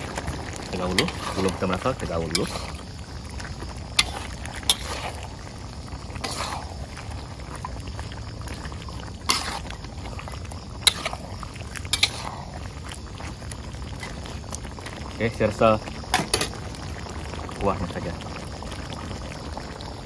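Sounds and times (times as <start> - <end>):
sauce simmering and bubbling: 0.0 - 20.0
utensils scraping a wok: 0.8 - 2.8, 4.0 - 5.3, 6.1 - 6.8, 9.2 - 9.8, 10.8 - 12.6.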